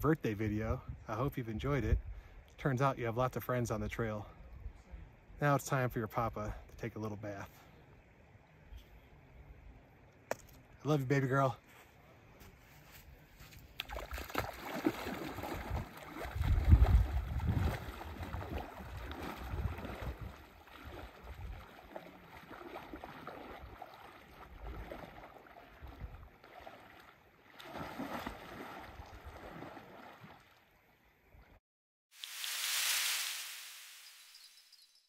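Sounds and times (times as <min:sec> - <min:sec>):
person swimming splashes: 0:13.8 - 0:30.6
water splashing from wading: 0:13.8 - 0:30.9.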